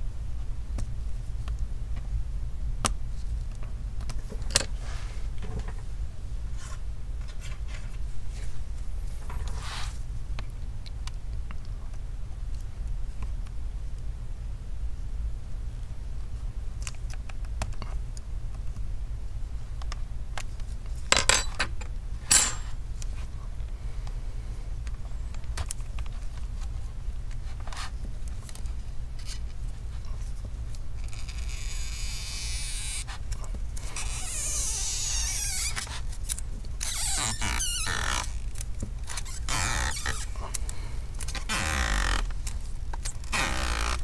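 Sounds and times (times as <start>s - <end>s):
steady low hum: 0.0s - 44.0s
tape peeling with a hiss: 9.4s - 10.0s, 31.0s - 40.6s.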